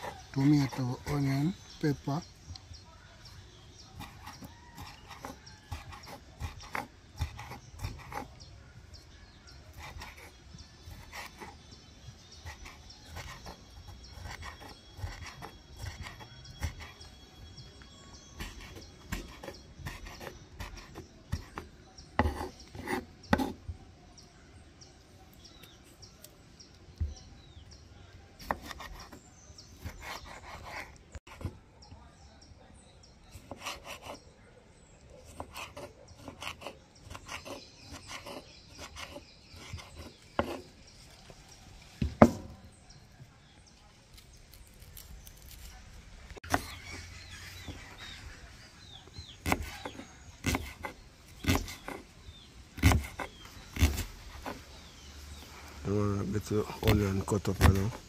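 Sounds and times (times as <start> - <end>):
knife cutting on wooden board: 4.0 - 8.4, 9.7 - 11.7, 12.3 - 17.1, 18.3 - 23.6, 28.4 - 29.2, 29.8 - 31.6, 33.3 - 34.2, 35.2 - 40.8, 46.4 - 48.2, 49.2 - 52.1, 52.8 - 54.7, 56.8 - 58.0.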